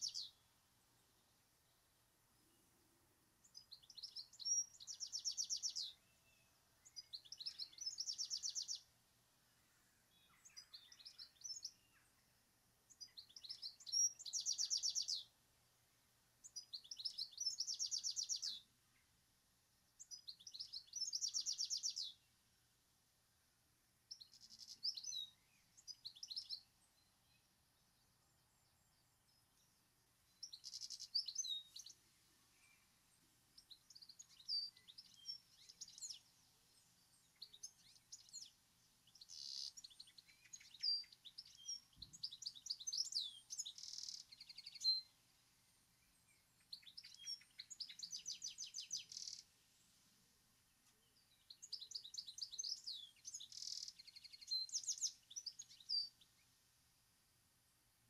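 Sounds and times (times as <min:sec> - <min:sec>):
bird twittering and trilling: 0:00.0 - 0:00.4, 0:03.4 - 0:08.9, 0:10.1 - 0:12.2, 0:12.9 - 0:15.3, 0:16.4 - 0:19.0, 0:20.0 - 0:22.3, 0:24.1 - 0:28.0, 0:30.3 - 0:32.9, 0:33.6 - 0:45.1, 0:46.0 - 0:49.5, 0:50.8 - 0:56.4.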